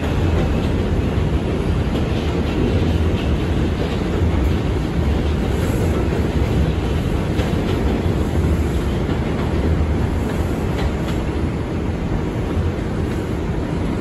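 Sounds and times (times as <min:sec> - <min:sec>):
rail-joint clicks: 0:00.0 - 0:14.0
subway car wheels rumbling: 0:00.0 - 0:14.0.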